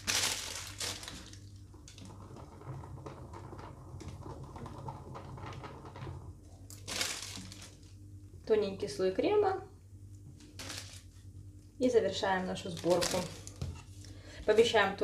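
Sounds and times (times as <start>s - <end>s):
plastic piping bag rustling: 0.0s - 2.1s, 6.7s - 8.0s, 10.4s - 11.2s, 12.4s - 14.1s.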